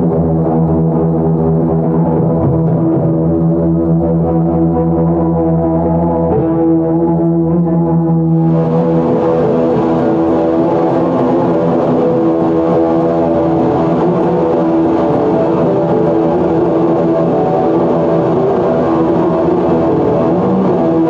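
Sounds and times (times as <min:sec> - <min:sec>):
electronic drone: 0:00.0 - 0:21.0.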